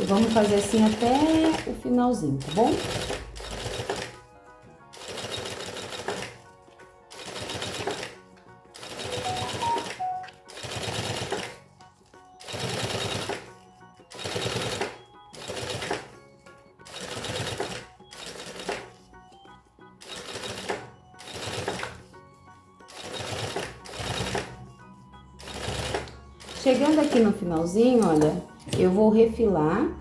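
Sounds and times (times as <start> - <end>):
sewing machine stitching: 0.0 - 1.7, 2.4 - 4.2, 5.0 - 6.4, 7.2 - 8.2, 8.8 - 11.5, 12.4 - 13.5, 14.1 - 16.1, 16.9 - 18.8, 20.0 - 22.0, 22.9 - 24.5, 25.4 - 27.4.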